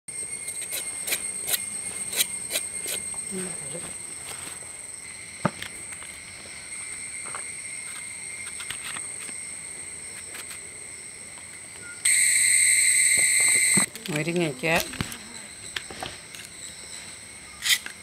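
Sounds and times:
insects trilling: 0.1s - 18.0s.

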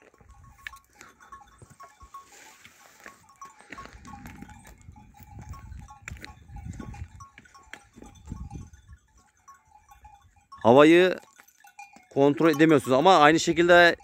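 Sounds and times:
goat bells tinkling: 0.0s - 14.0s
wind rumble on microphone: 3.8s - 9.2s.

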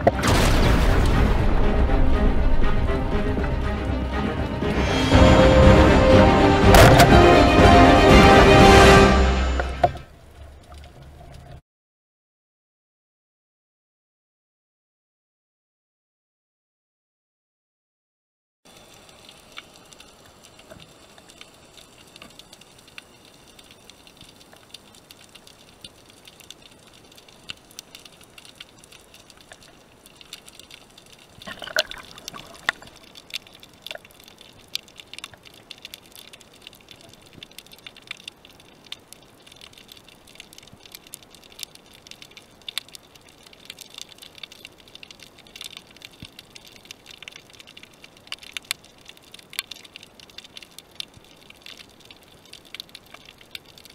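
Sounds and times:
underwater hiss with clicks: 18.7s - 53.9s
watery gush: 18.7s - 53.9s.

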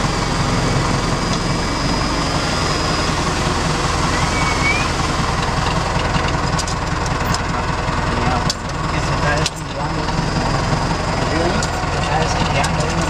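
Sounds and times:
tractor engine running: 0.0s - 13.0s
short squeak: 4.1s - 5.0s.

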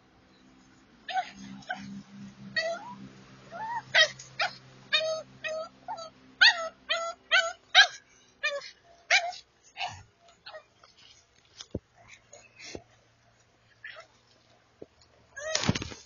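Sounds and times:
dog yipping and whining: 1.1s - 10.7s, 13.8s - 14.1s.

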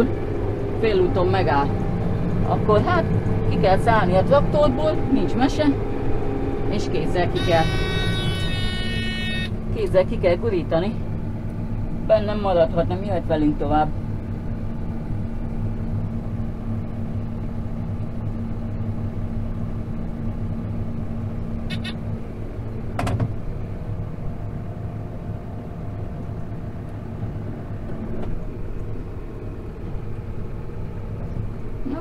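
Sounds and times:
tractor engine running: 0.0s - 32.0s.

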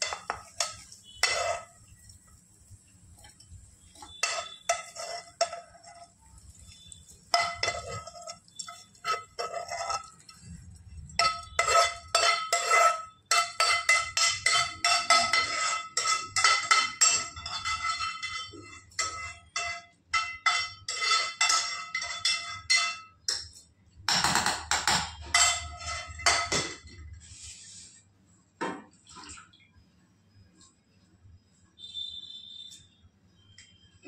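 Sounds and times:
steel utensil striking steel vessel: 4.0s - 5.6s.

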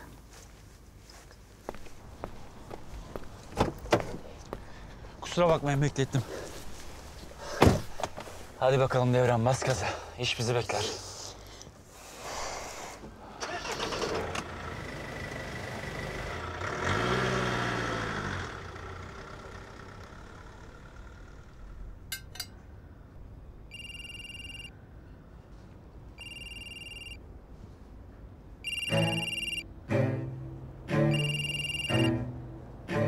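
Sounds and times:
car engine revving: 14.4s - 21.6s
phone ringtone: 23.7s - 24.7s, 26.2s - 27.2s, 28.6s - 29.7s, 31.1s - 32.2s.

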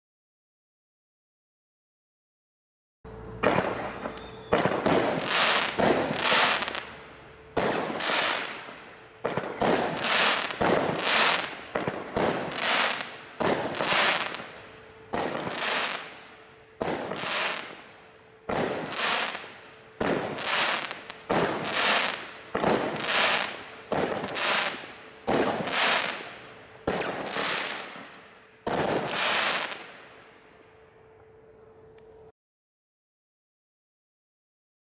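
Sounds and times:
firework hiss: 3.4s - 6.9s, 7.6s - 14.6s, 15.2s - 16.2s, 16.9s - 17.8s, 18.6s - 26.4s, 28.7s - 29.8s
firework bangs: 3.4s - 7.0s, 7.6s - 17.8s, 18.5s - 30.0s.

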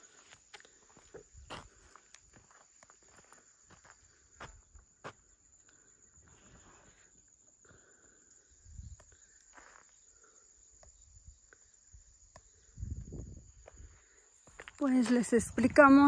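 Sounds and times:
footsteps on open ground: 0.0s - 5.4s, 13.0s - 16.0s.

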